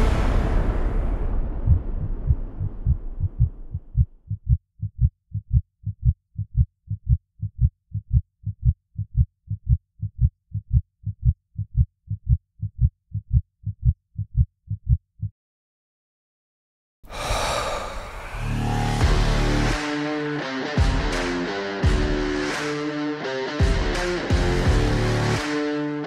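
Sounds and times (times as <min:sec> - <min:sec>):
heartbeat thumps: 0:01.4 - 0:15.3.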